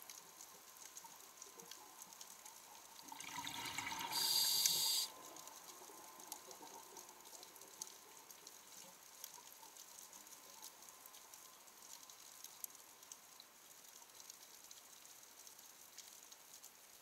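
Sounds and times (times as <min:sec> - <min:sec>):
tiny clicks and crackles: 0:00.0 - 0:17.0
faint underwater hiss: 0:01.0 - 0:12.3.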